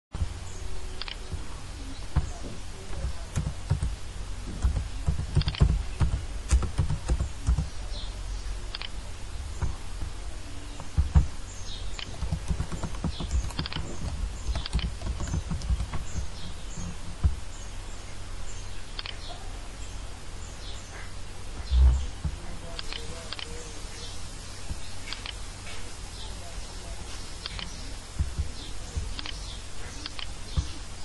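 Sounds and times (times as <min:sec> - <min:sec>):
low hum: 0:00.2 - 0:31.0
keyboard typing: 0:02.9 - 0:07.7, 0:12.0 - 0:17.3
mouse clicks: 0:04.6 - 0:07.7, 0:12.0 - 0:16.2, 0:19.0 - 0:19.3, 0:27.4 - 0:29.4, 0:30.0 - 0:30.8.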